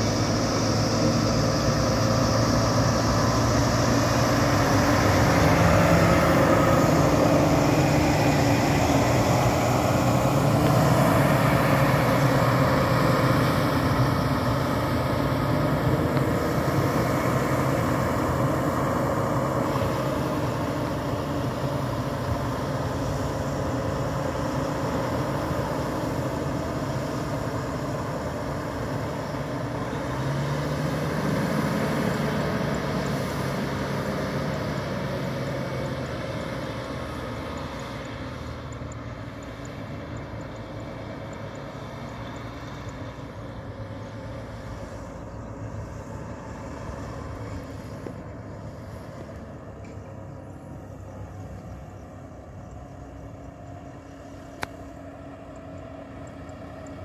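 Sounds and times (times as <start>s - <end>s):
truck diesel engine running: 0.0s - 57.0s.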